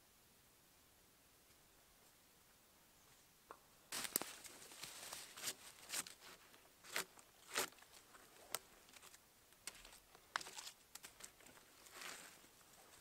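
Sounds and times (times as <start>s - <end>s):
dry leaves rustling and crunching: 3.9s - 13.0s.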